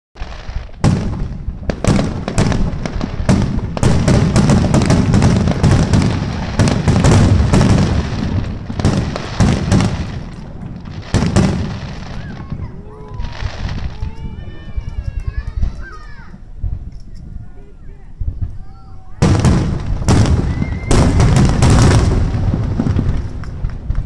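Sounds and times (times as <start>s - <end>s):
firework shells bursting: 0.2s - 14.2s, 19.2s - 24.0s.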